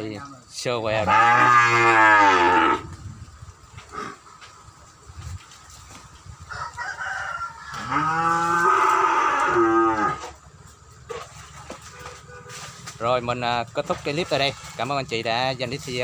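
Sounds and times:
cow mooing: 1.0s - 2.9s, 7.7s - 10.4s.

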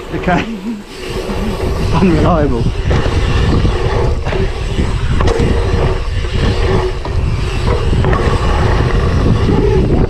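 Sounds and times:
bike tyres rolling over dirt: 0.0s - 10.0s
wind buffeting microphone: 0.9s - 10.0s.

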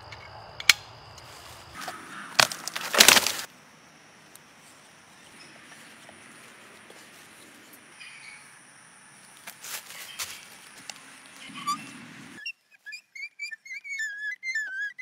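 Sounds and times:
wood snapping: 1.8s - 3.5s
wood crackling and breaking: 2.4s - 3.5s.

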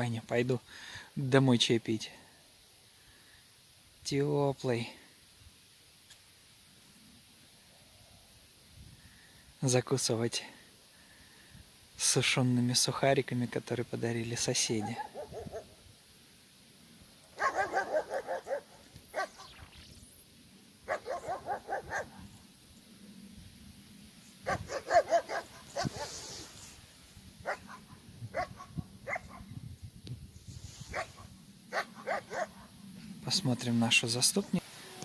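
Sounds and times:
dog barking: 14.8s - 15.7s, 17.4s - 19.4s, 20.9s - 22.2s, 24.4s - 26.1s, 27.4s - 29.4s, 30.9s - 32.7s.

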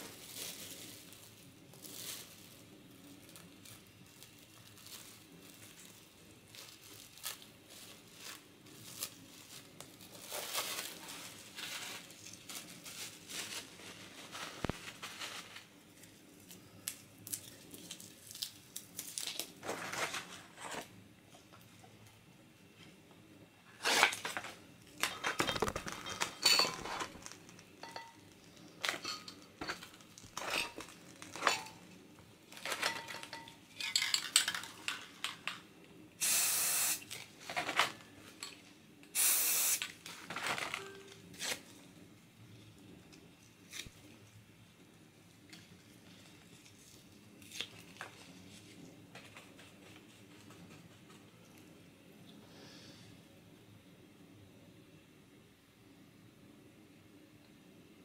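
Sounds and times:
spray cans clinking: 25.1s - 28.2s, 39.2s - 39.9s
spray can hissing: 36.2s - 37.0s, 39.1s - 39.9s.

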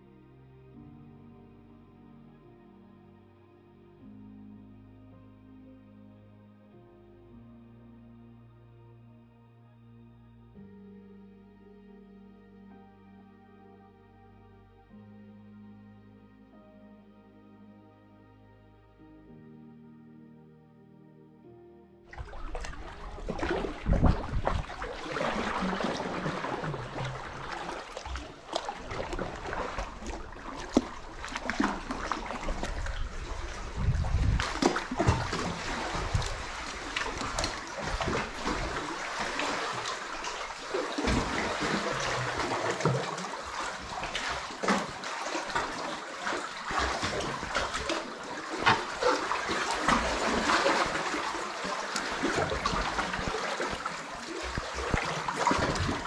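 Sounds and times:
waves lapping against rock: 22.1s - 56.0s
sharp water slaps: 22.2s - 56.0s.

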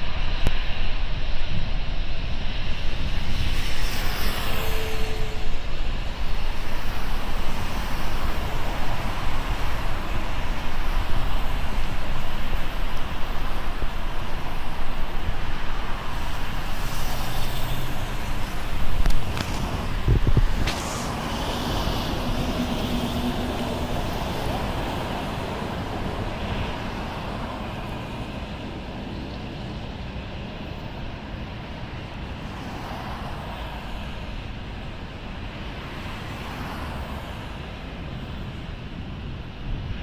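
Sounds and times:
cars passing: 3.0s - 40.0s
tyre hiss: 16.8s - 23.7s.

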